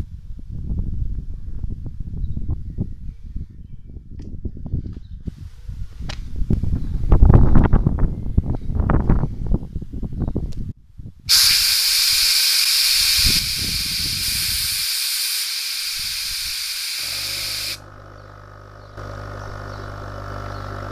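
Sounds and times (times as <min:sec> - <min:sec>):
pressurised tank hissing: 0:11.3 - 0:17.8
low tonal hum: 0:17.0 - 0:20.9.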